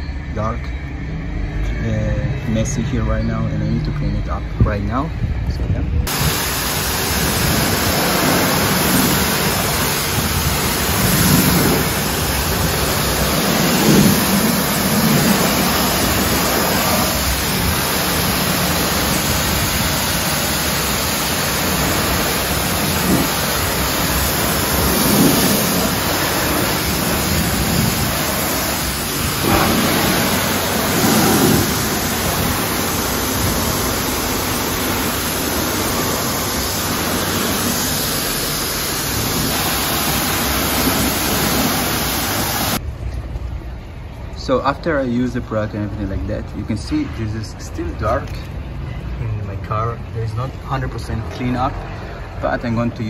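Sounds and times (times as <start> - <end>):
pressure washer spraying: 6.1 - 42.8.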